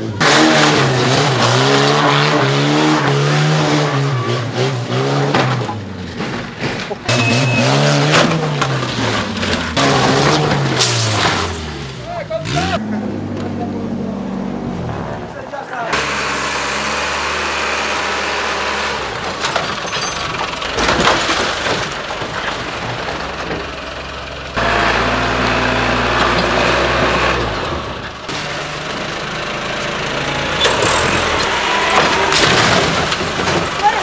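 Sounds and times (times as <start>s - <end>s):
heavy machine engine revving: 0.0s - 15.3s, 15.9s - 34.0s
metal cracking and crunching: 19.2s - 23.8s, 30.6s - 34.0s.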